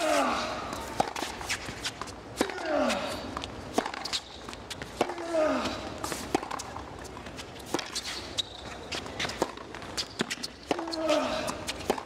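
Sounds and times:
racket striking tennis ball: 0:00.7 - 0:02.7, 0:03.7 - 0:05.3, 0:06.1 - 0:08.1, 0:09.2 - 0:11.0
tennis ball bouncing: 0:00.7 - 0:02.7, 0:03.4 - 0:05.3, 0:06.1 - 0:11.0.

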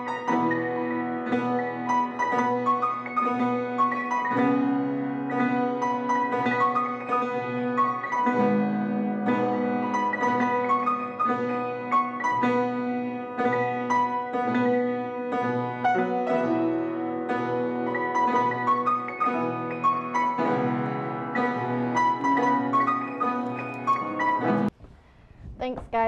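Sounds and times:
piano melody: 0:00.0 - 0:24.8.

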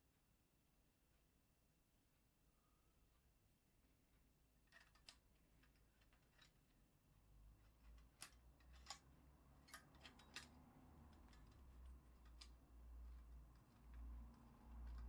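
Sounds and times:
small metallic clicks: 0:04.6 - 0:06.8, 0:07.6 - 0:15.0.

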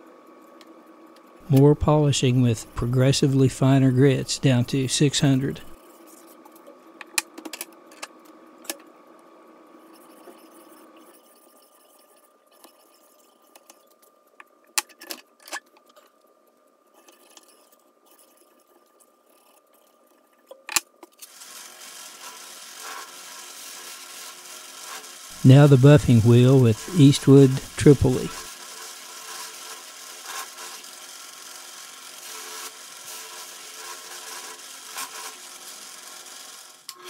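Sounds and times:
faint steady hum: 0:00.0 - 0:07.2.

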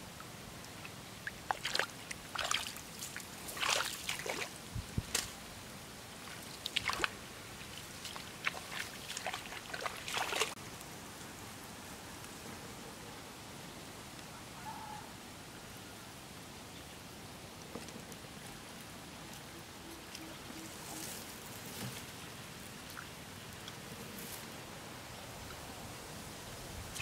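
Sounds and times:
faint steady hiss: 0:00.0 - 0:27.0
footsteps sloshing in muddy water: 0:01.2 - 0:05.2, 0:06.2 - 0:10.6
footsteps swishing through wet grass: 0:01.5 - 0:05.2, 0:06.3 - 0:10.6.

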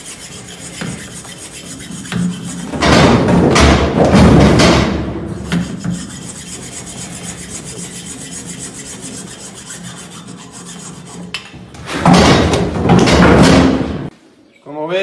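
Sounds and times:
hacksaw sawing through horn: 0:00.0 - 0:02.9, 0:05.4 - 0:11.4.

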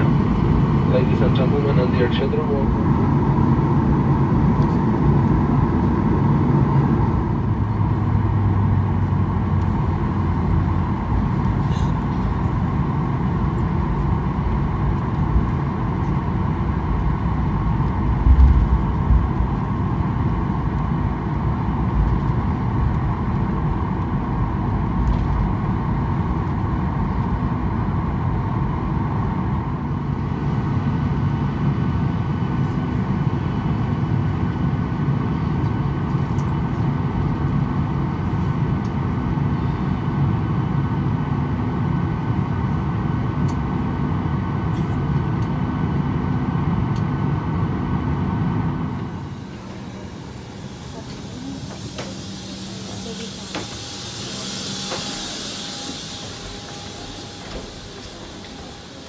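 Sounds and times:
jet engines idling: 0:00.0 - 0:59.0.

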